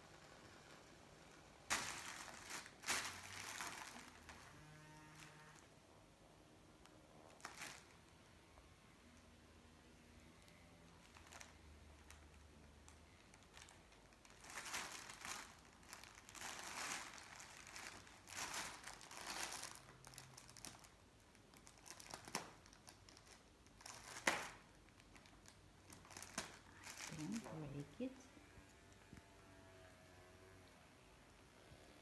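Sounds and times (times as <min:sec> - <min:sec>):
plastic cover crinkling: 0:01.7 - 0:05.7, 0:06.8 - 0:08.2, 0:10.9 - 0:28.2.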